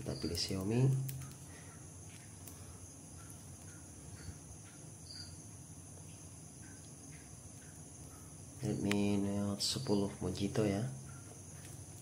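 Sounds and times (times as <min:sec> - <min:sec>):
faint high-pitched whine: 0:00.0 - 0:12.0.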